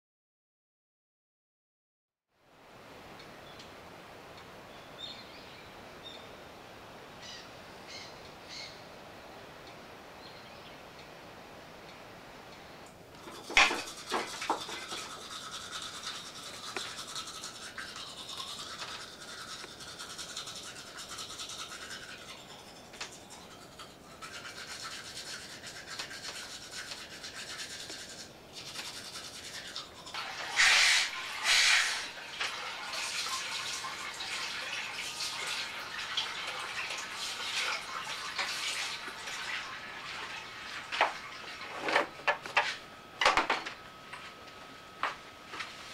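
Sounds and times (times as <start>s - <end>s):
toothbrush scrubbing teeth: 13.2s - 39.5s.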